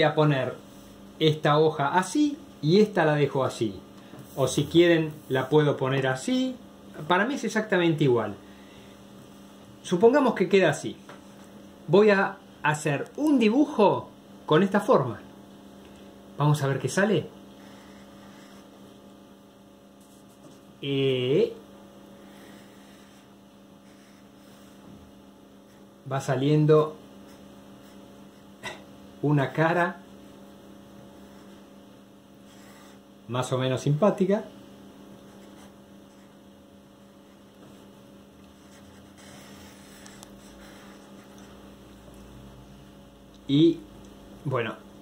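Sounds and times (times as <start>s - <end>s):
electrical hum: 0.0s - 45.0s
marker pen scratching on paper: 17.6s - 18.8s, 20.0s - 20.7s, 22.2s - 24.9s, 31.2s - 31.8s, 32.4s - 33.0s, 35.2s - 36.4s, 38.5s - 41.6s.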